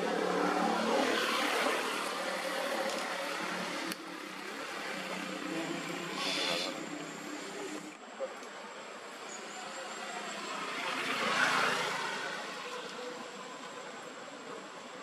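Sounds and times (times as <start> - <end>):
vehicle passing by: 10.1 - 12.6.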